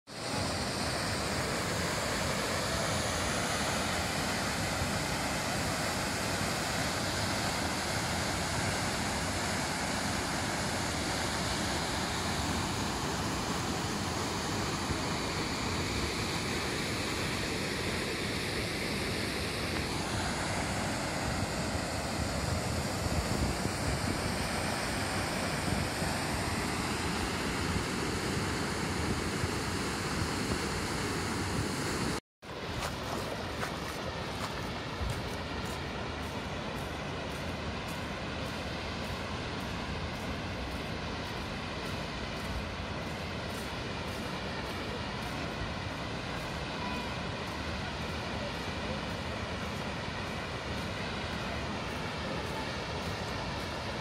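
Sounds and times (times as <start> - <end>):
waterfall roaring into a pool: 0.1 - 54.0.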